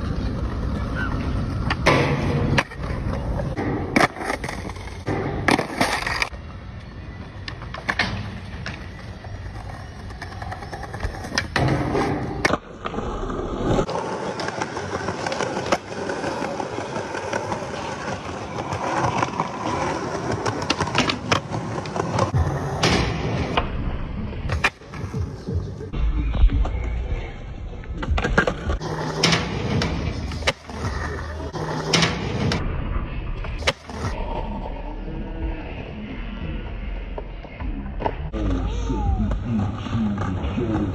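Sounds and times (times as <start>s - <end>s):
skateboard wheels rolling on concrete: 0.0s - 40.9s.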